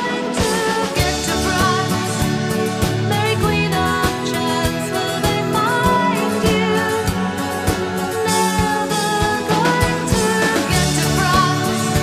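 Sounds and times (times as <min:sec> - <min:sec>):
double bass: 0:00.0 - 0:12.0
electric guitar: 0:00.0 - 0:12.0.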